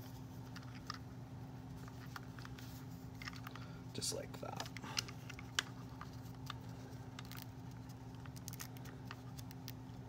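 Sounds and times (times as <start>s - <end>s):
steady low hum: 0.0s - 10.0s
hands handling plastic doll: 4.5s - 9.8s.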